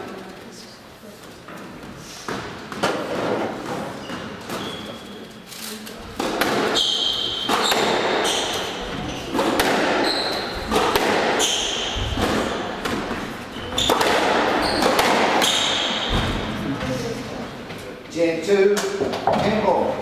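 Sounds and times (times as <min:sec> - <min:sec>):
shoes squeaking on wooden floor: 0:03.6 - 0:05.2, 0:06.0 - 0:17.1
squash ball knocks: 0:06.2 - 0:06.8, 0:07.4 - 0:08.6, 0:09.3 - 0:10.0, 0:10.6 - 0:16.5.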